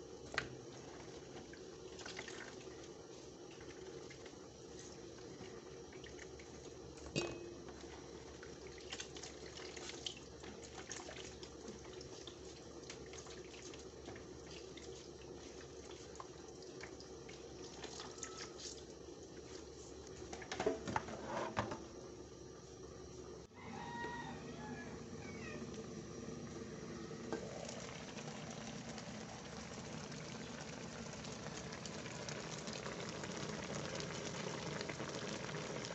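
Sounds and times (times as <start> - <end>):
faint steady hum: 0.0 - 35.9
liquid dripping and splashing: 8.3 - 19.6.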